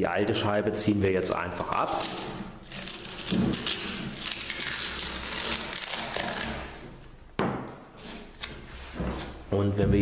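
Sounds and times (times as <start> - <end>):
hook-and-loop tearing crackle: 1.7 - 6.8.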